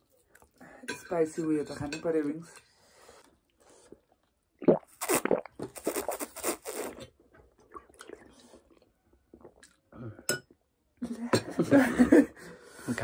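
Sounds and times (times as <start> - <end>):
crunching and chewing food: 5.6 - 9.9.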